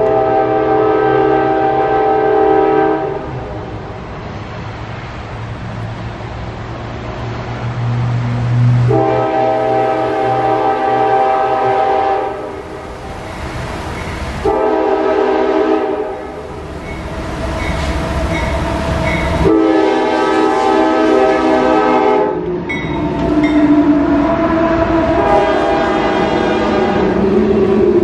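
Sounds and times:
locomotive air horn blasts: 0:00.0 - 0:03.7, 0:08.6 - 0:12.7, 0:14.4 - 0:16.4, 0:19.4 - 0:22.5, 0:23.1 - 0:28.0
locomotive engine rumble: 0:00.0 - 0:28.0.

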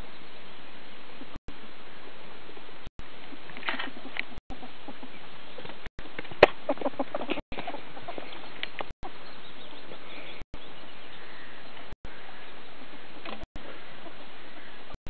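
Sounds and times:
ferrets dooking: 0:06.3 - 0:08.7.

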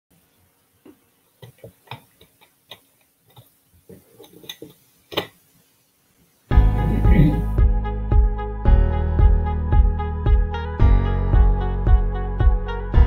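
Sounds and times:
faint steady hum: 0:00.1 - 0:07.6.

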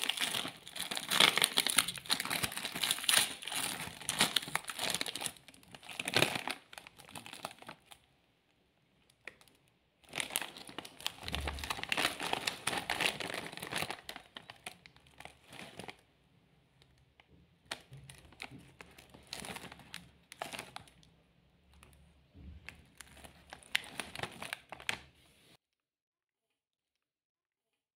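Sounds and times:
snack packet crinkling: 0:00.0 - 0:08.0, 0:09.2 - 0:16.0, 0:17.6 - 0:21.1, 0:22.7 - 0:25.1.

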